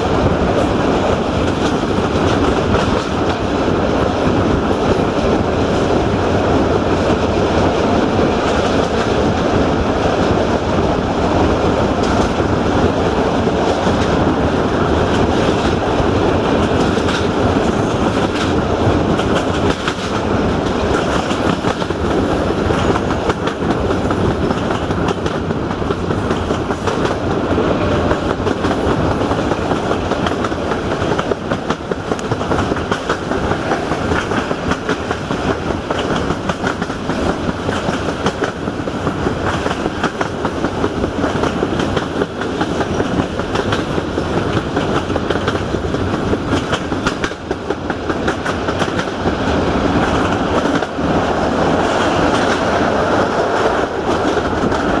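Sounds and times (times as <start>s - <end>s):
train wheels rumbling: 0.0s - 55.0s
wheels clicking over rail joints: 13.4s - 55.0s.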